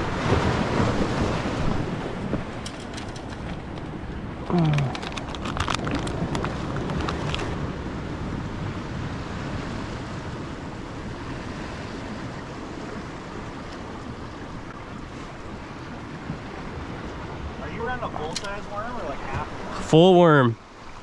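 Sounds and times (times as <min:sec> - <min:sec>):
wind rumbling on microphone: 0:00.0 - 0:19.9
surf washing on beach: 0:00.0 - 0:21.0
sharp clicks: 0:02.7 - 0:07.5.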